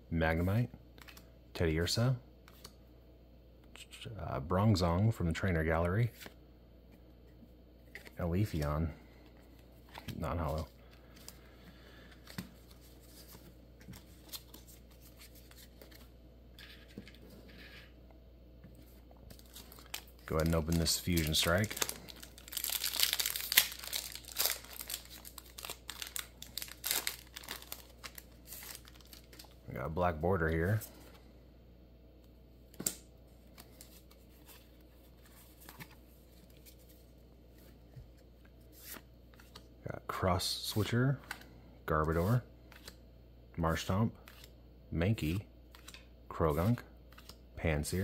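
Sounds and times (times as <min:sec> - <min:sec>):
cards rustling: 0:07.8 - 0:18.0, 0:18.7 - 0:31.3, 0:32.7 - 0:43.0, 0:45.7 - 0:48.0
cards shuffling and flicking: 0:42.2 - 0:43.0, 0:45.7 - 0:47.4.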